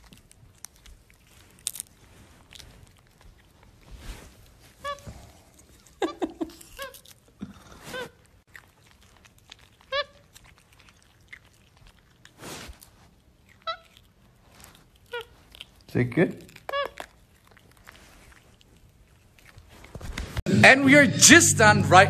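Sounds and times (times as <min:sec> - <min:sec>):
soft crunching and smacking: 0:00.0 - 0:20.4
monkey squeaky chirps: 0:04.8 - 0:05.1, 0:06.0 - 0:07.2, 0:09.9 - 0:10.3, 0:13.6 - 0:14.0, 0:15.1 - 0:15.4, 0:16.5 - 0:17.1.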